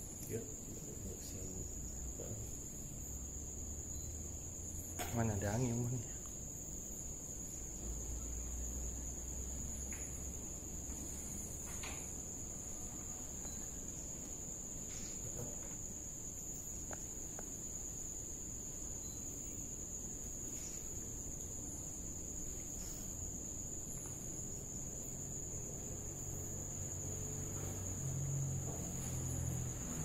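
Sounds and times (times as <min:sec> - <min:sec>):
crickets chirring: 0:00.0 - 0:30.0.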